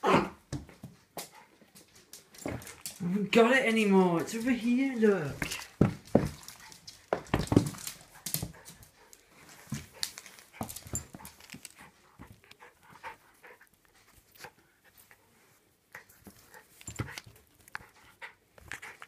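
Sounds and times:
clicks and scuffles: 5.3s - 12.6s
dogs panting: 5.4s - 19.0s.

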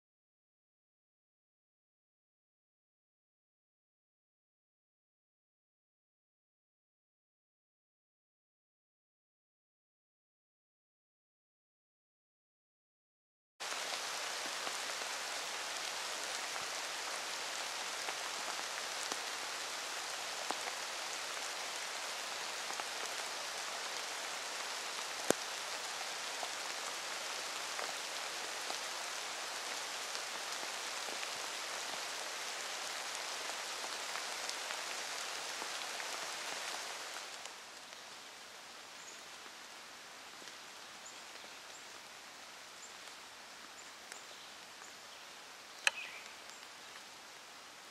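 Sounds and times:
rain on forest floor: 13.6s - 47.9s
light ticks: 25.3s - 25.5s.

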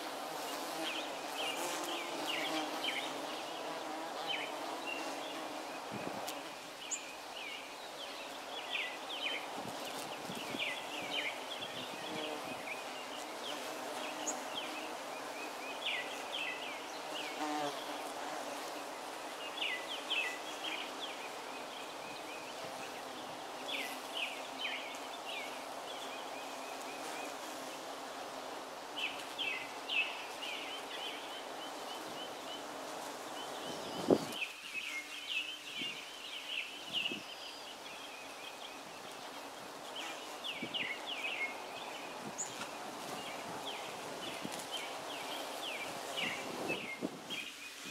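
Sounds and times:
bees buzzing: 0.0s - 6.7s.

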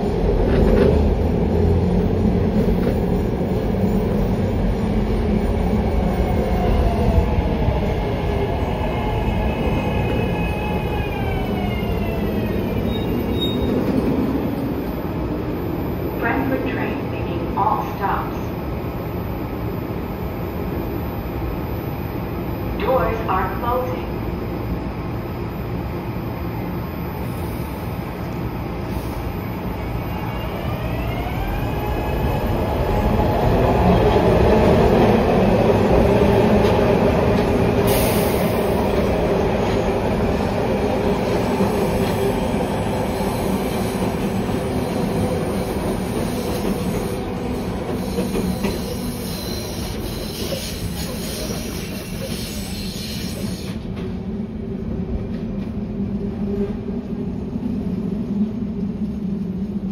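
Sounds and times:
train wheels rumbling on rails: 0.0s - 15.6s, 30.5s - 59.9s.

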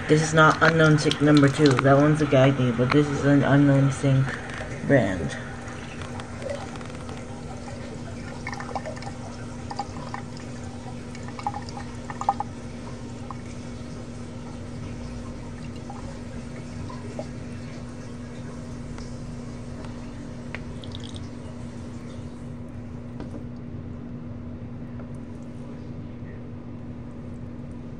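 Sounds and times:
water splashing: 0.0s - 22.2s
water running from faucet into sink: 0.0s - 22.4s
steady hum: 0.0s - 27.9s.

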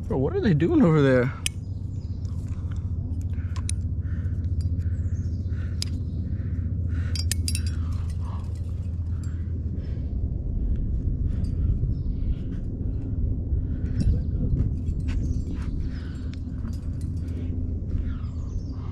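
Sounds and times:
steady low rumble: 0.0s - 18.9s
metal climbing gear clinking: 2.2s - 4.9s, 6.9s - 9.5s, 13.9s - 18.4s.

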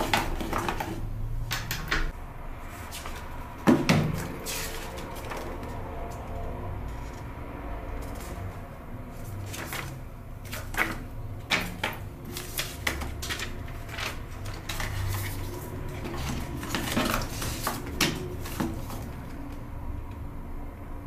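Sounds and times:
paper rustling: 0.0s - 1.0s, 2.7s - 7.2s, 8.0s - 19.5s
paper taps and flicks: 9.5s - 19.3s.

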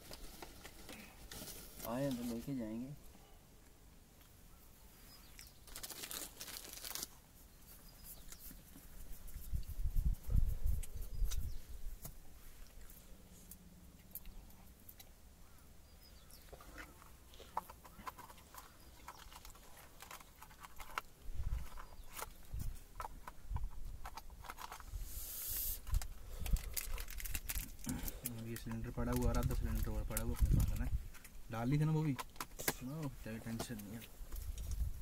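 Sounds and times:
camp gear clicking and rustling: 0.0s - 2.9s, 5.3s - 9.0s, 16.2s - 25.1s, 25.7s - 35.0s
hissing rustle: 24.6s - 28.6s.

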